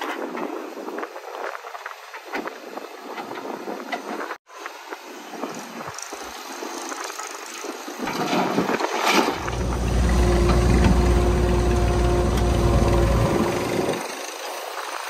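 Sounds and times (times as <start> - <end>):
hiss with clatter: 0.0 - 15.0
diesel engine drone: 9.4 - 14.1.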